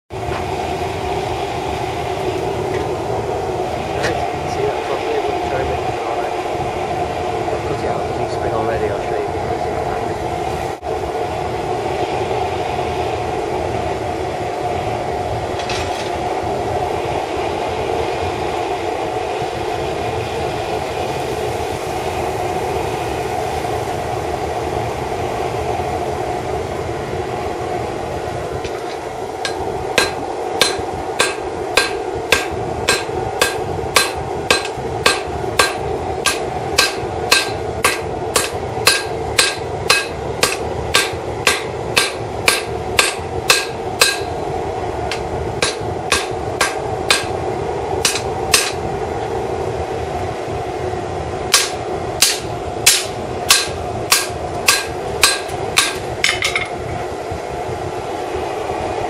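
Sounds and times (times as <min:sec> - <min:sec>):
propane forge burner roaring: 0:00.1 - 0:59.0
hammer blows on anvil: 0:28.7 - 0:44.4, 0:45.1 - 0:47.4, 0:48.0 - 0:48.8, 0:51.5 - 0:56.8.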